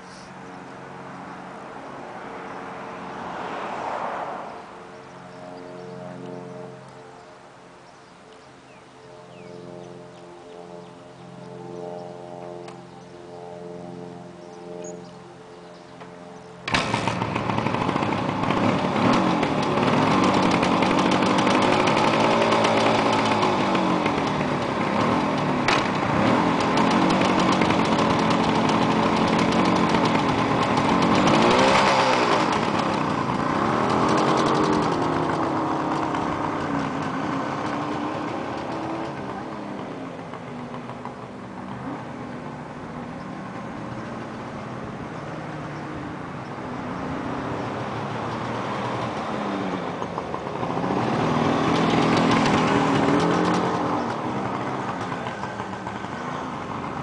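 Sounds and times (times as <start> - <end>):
motorcycle engine revving: 16.0 - 57.0.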